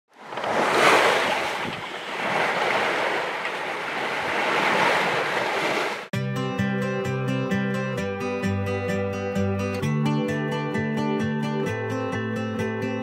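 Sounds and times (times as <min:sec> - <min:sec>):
water rushing along a hull: 0:00.1 - 0:06.1
wind buffeting microphone: 0:00.5 - 0:05.9.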